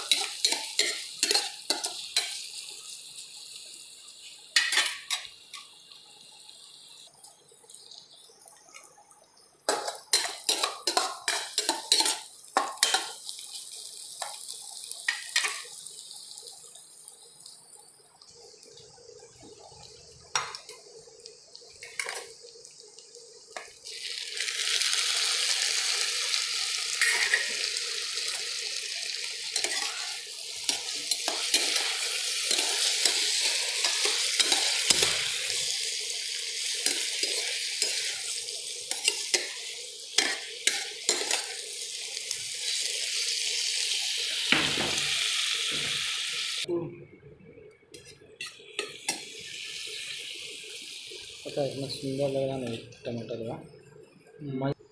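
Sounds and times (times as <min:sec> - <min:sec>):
loud sizzling in oil: 0:00.0 - 0:46.7, 0:47.9 - 0:54.8
spatula scraping pan: 0:29.6 - 0:35.4.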